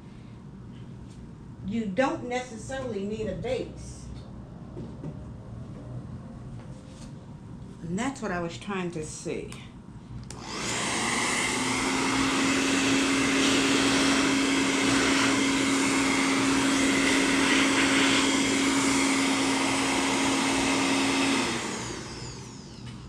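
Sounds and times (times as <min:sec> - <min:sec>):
hair dryer blowing: 0:10.3 - 0:23.0.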